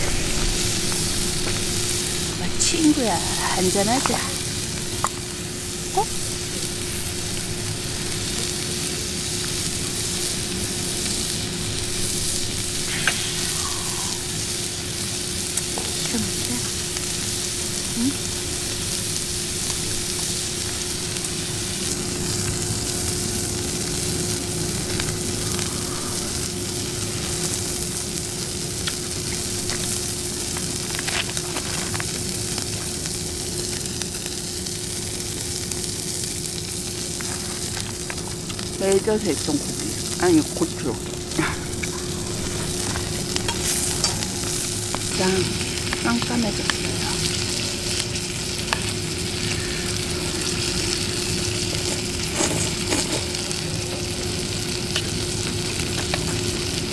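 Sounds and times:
low hum: 0:00.0 - 0:30.5
meat sizzling in a frying pan: 0:00.0 - 0:56.9.

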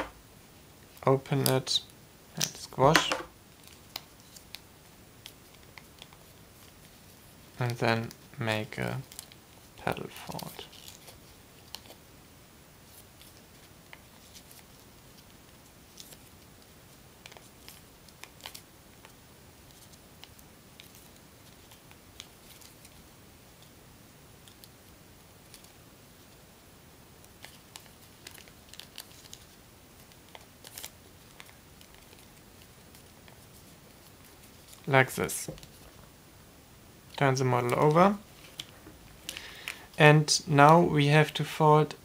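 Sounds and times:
soft paper crackles: 0:02.5 - 0:12.0, 0:12.8 - 0:23.7, 0:27.2 - 0:36.0, 0:37.1 - 0:40.0
paper rustling and crinkling: 0:09.0 - 0:12.0, 0:12.8 - 0:16.4, 0:17.2 - 0:18.6, 0:19.7 - 0:23.0, 0:27.3 - 0:36.0, 0:37.7 - 0:38.9.

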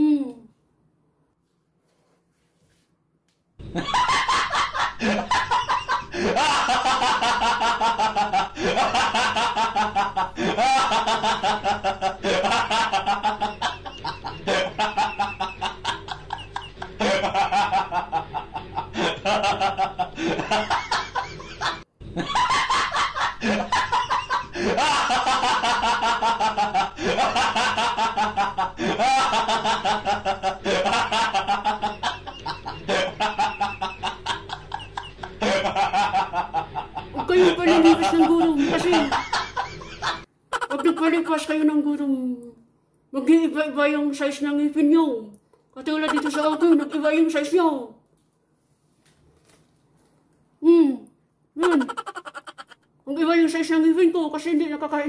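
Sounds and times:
canned laughter: 0:03.6 - 0:41.2, 0:45.9 - 0:46.8, 0:51.6 - 0:52.8.

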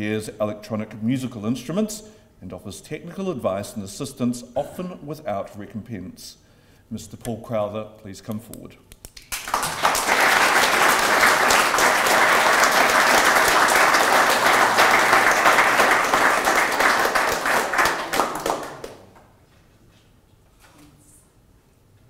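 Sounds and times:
audience applauding: 0:09.2 - 0:19.2.

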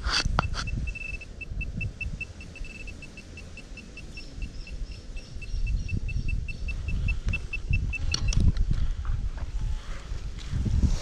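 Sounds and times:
metal detector pinpointer beeping: 0:00.1 - 0:08.5.

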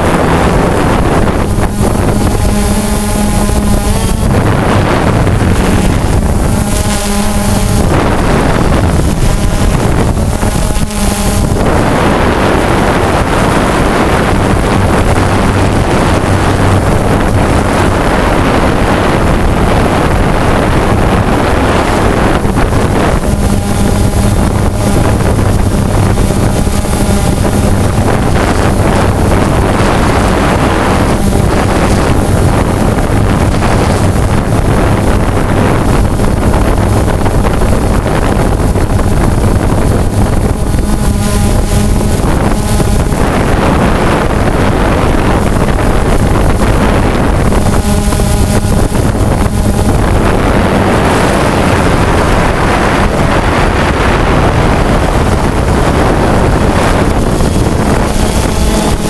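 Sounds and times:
drone propellers buzzing: 0:00.0 - 0:59.0
wind buffeting microphone: 0:00.0 - 0:59.0.

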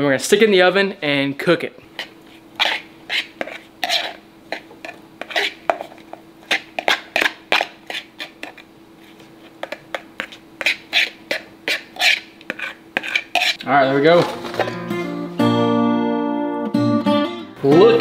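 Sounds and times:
metal utensil scraping ceramic bowl: 0:02.0 - 0:08.6, 0:09.6 - 0:13.6.

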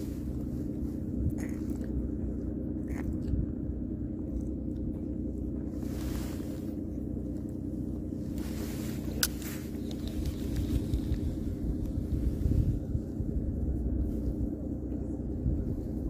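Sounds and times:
steady low hum: 0:00.0 - 0:16.0
faint clicks of rod and reel: 0:09.0 - 0:11.3.

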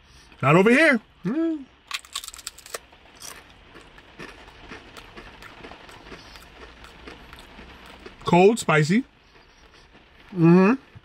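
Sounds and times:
tortilla chip crunching: 0:01.8 - 0:08.7.

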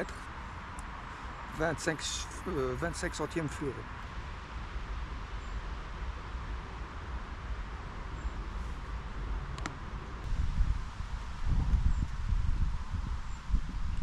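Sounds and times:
wind buffeting microphone: 0:10.2 - 0:14.0.

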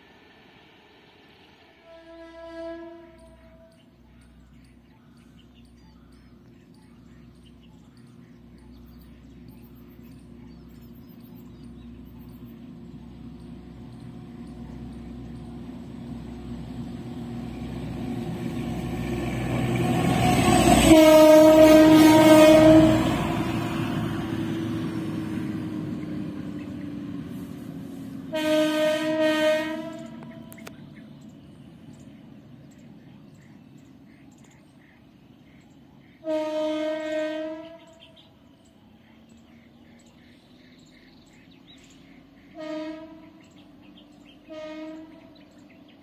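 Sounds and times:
train rumble: 0:00.0 - 0:46.0
locomotive horn blasts: 0:01.8 - 0:03.9, 0:20.0 - 0:23.6, 0:28.3 - 0:30.6, 0:36.2 - 0:38.1, 0:42.5 - 0:43.4, 0:44.4 - 0:45.4.

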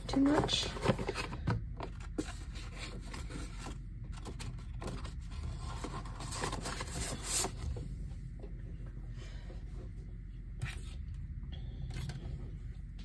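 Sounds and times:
cardboard and paper rustling: 0:00.0 - 0:07.9.

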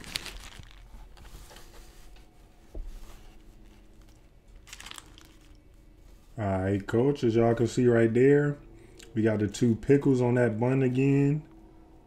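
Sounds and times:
paper wrapper rustling: 0:00.0 - 0:02.3, 0:03.5 - 0:05.8.

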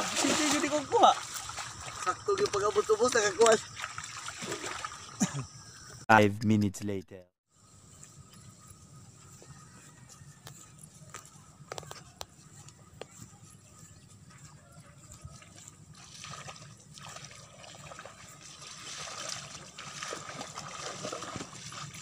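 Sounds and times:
footsteps on wet grass: 0:00.0 - 0:05.0, 0:07.9 - 0:22.0
people wading through water: 0:00.0 - 0:05.5, 0:11.0 - 0:22.0.

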